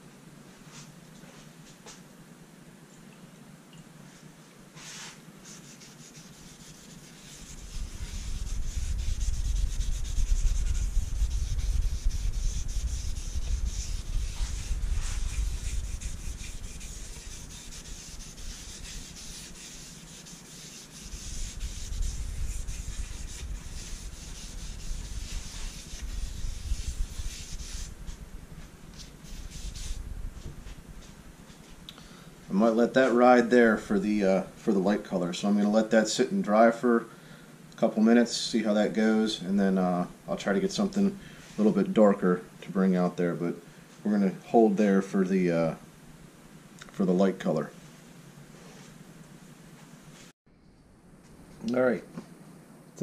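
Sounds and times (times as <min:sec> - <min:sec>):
cloth rubbing on wood: 0:04.8 - 0:31.7
low rumble: 0:07.5 - 0:19.3, 0:21.1 - 0:31.5.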